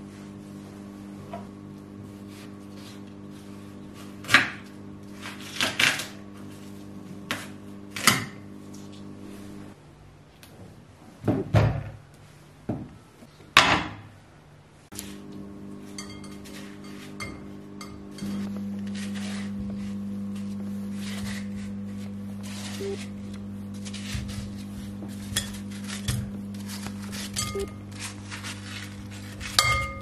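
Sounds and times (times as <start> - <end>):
steady low hum: 14.3 - 30.0
knife cutting watermelon: 18.2 - 30.0.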